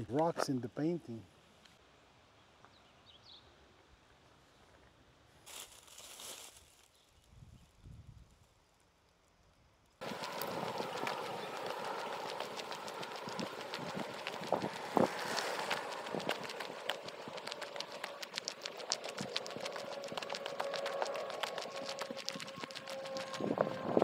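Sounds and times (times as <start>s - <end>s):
footsteps on gravel: 10.0s - 24.0s.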